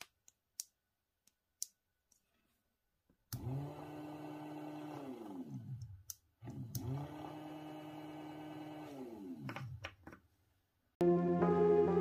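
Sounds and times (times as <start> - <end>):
electric motor humming: 3.4 - 5.8, 6.5 - 9.5.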